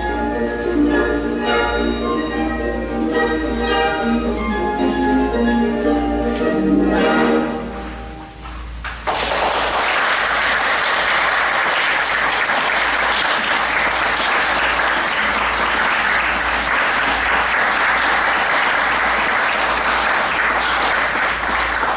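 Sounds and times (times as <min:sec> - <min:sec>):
music: 0:00.0 - 0:09.0
audience applauding: 0:08.8 - 0:21.9.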